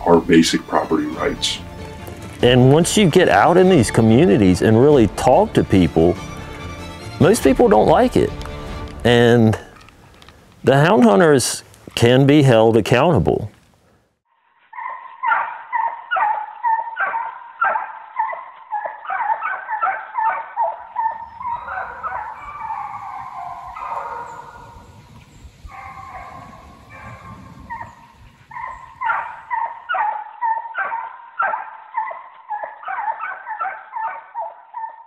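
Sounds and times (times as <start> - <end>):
hounds barking: 14.7 - 24.9, 25.6 - 35.0
hounds baying: 14.8 - 24.9, 25.6 - 35.0.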